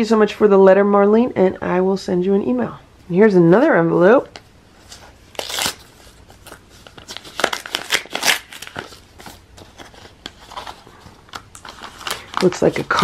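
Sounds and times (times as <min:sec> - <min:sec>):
paper envelope tearing: 0:05.3 - 0:13.0.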